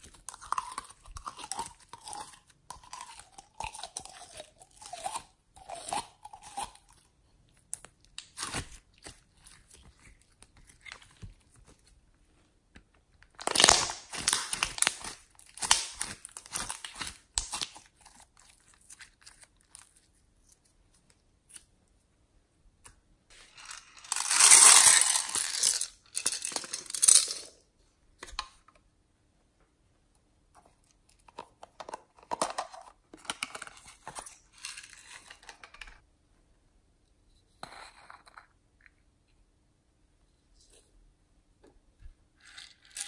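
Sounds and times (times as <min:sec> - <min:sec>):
slime crackling and tearing: 0:13.4 - 0:20.5.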